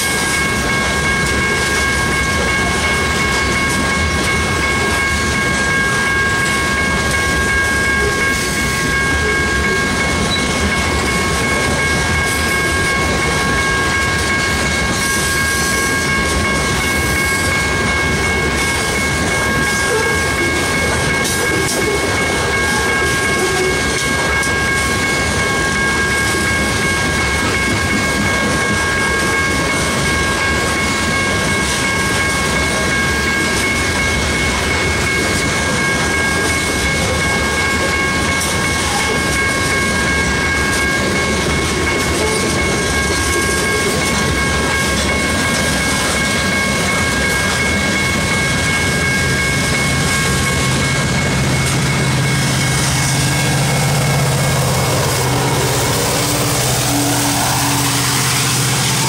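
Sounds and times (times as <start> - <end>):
high-pitched tones: 0.0 - 59.0
steel wheels rumbling on rail: 0.0 - 59.0
locomotive diesel engine hum: 44.5 - 59.0.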